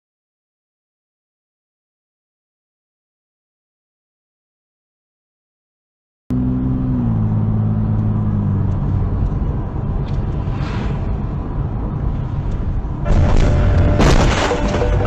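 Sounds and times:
car engine hum: 6.3s - 15.0s
road and tyre noise: 6.3s - 15.0s.

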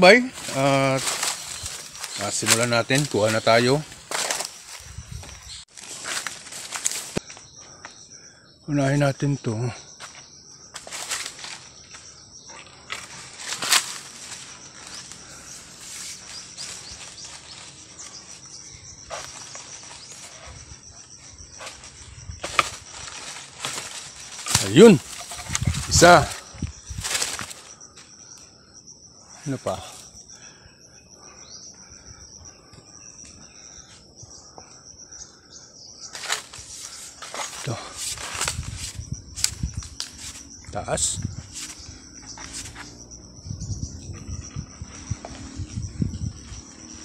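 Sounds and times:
leaves and branches rustling: 0.0s - 7.6s, 10.0s - 28.5s, 36.0s - 47.0s
high insect trill: 0.0s - 47.0s
pole knocking branches: 21.6s - 27.6s.

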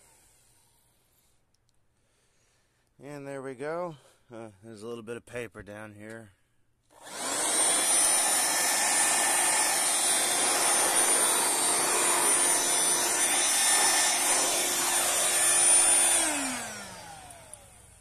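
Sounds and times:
handheld vacuum cleaner whining: 7.0s - 18.0s.

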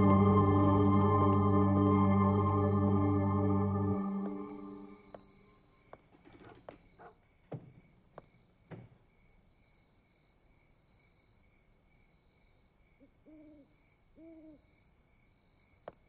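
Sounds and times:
background music: 0.0s - 5.2s.

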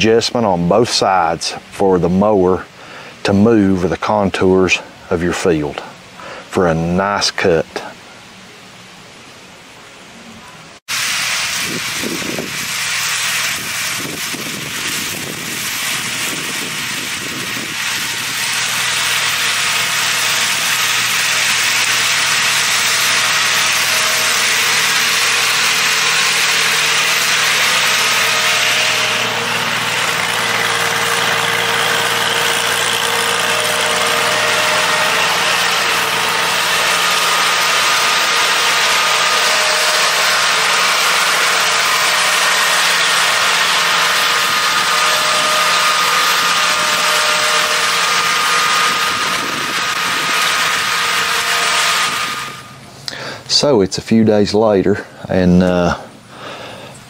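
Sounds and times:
mower hiss: 10.9s - 53.4s
tractor engine hum: 11.0s - 53.6s.

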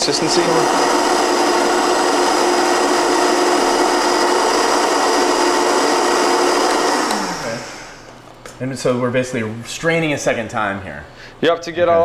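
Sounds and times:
blender motor whine: 0.0s - 8.1s.

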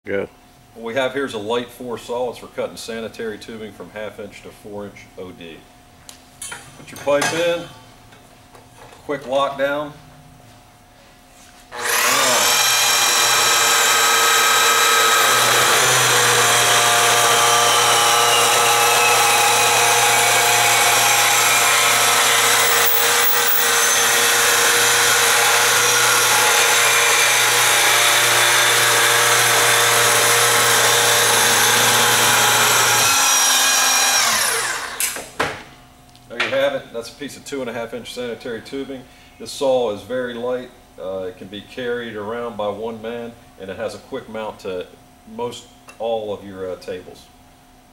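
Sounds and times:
electric saw motor whine: 11.7s - 35.2s.

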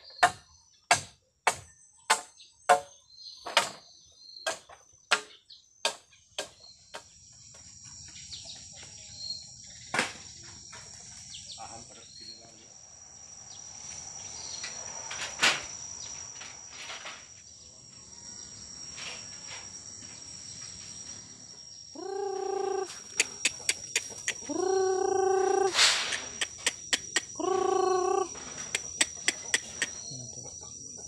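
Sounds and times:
crickets chirring: 0.0s - 31.0s
chickens calling: 21.9s - 31.0s
sharp ticks: 22.1s - 30.0s.

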